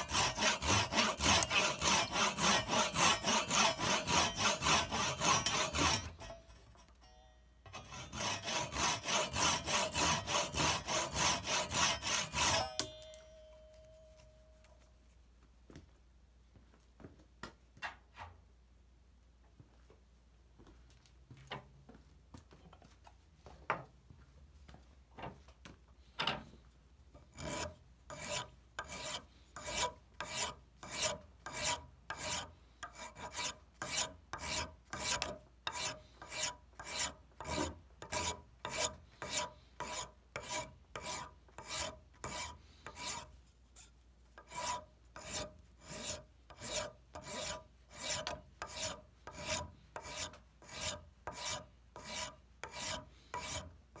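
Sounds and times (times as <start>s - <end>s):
sanding strip scratching wood: 0.0s - 6.2s, 7.9s - 12.7s, 27.4s - 43.3s, 44.4s - 53.7s.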